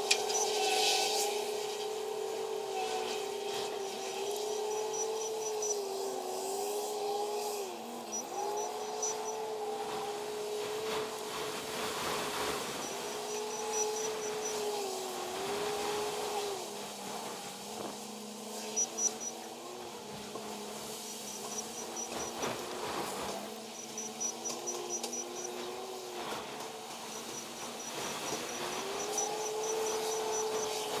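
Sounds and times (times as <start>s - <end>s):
faint high-pitched beeping: 8.0s - 9.4s, 18.6s - 19.5s, 23.7s - 25.7s.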